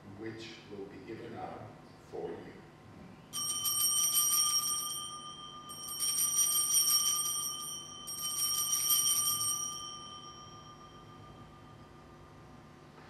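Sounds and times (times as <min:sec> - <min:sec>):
altar bells jangling: 0:03.4 - 0:12.1.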